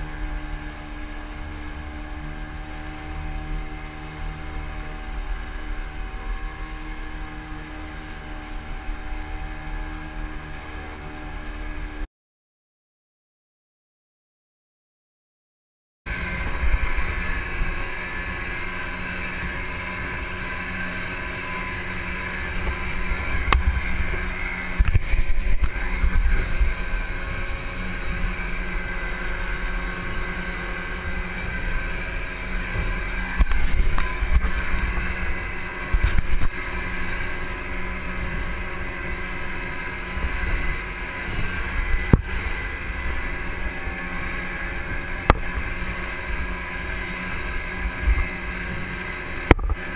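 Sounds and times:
outboard motors running: 0:00.0 - 0:12.1, 0:16.1 - 0:49.9
wind buffeting microphone: 0:16.1 - 0:49.9.

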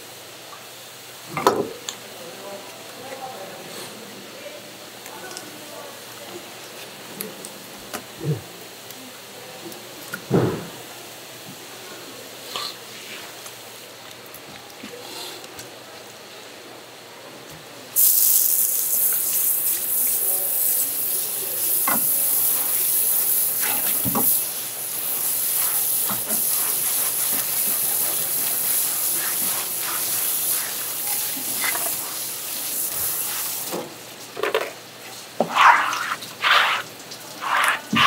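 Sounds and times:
water spraying hard: 0:18.0 - 0:34.0, 0:35.4 - 0:38.0.

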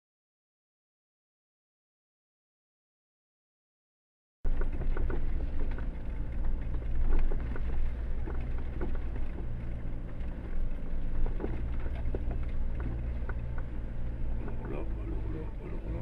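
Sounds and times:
vehicle knocks and rattles: 0:04.5 - 0:15.0
vehicle engine running: 0:04.5 - 0:16.0.

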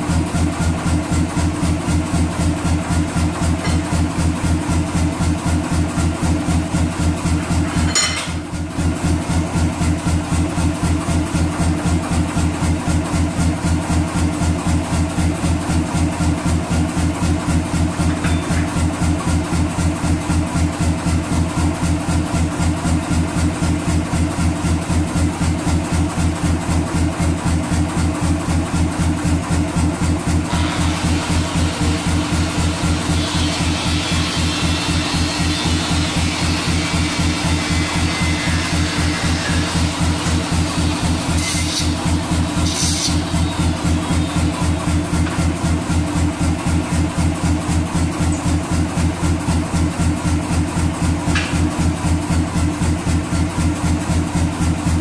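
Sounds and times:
power hammer motor chugging: 0:29.8 - 0:49.7.

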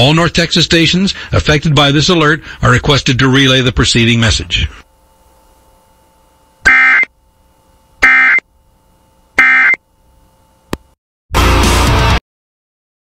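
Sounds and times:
faint steady hum: 0:00.0 - 0:11.0
buzzing digital data tones: 0:06.0 - 0:07.3, 0:08.0 - 0:08.6, 0:09.4 - 0:09.9.

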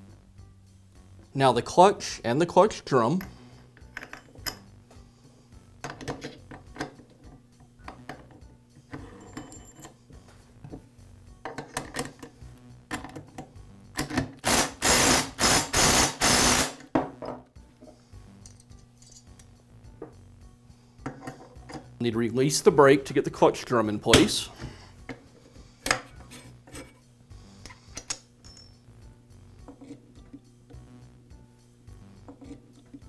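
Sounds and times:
light metal clicks and clinks: 0:09.2 - 0:10.0, 0:18.3 - 0:19.5, 0:28.0 - 0:28.8.

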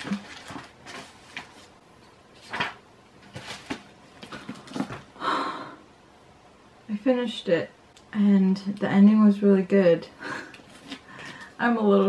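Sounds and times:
book pages rustling: 0:00.0 - 0:05.1, 0:10.6 - 0:11.5.

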